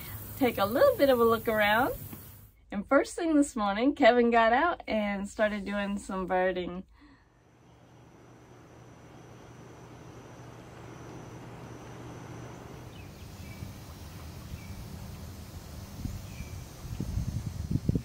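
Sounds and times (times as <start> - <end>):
faint insect drone: 0.0 - 2.5, 7.2 - 18.0
bird chirps: 12.5 - 15.2.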